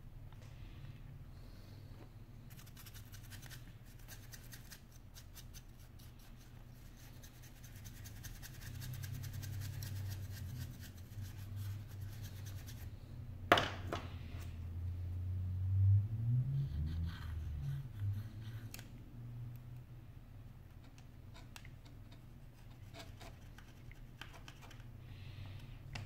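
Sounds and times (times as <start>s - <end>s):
brush scrubbing phone housing: 2.5s - 12.8s.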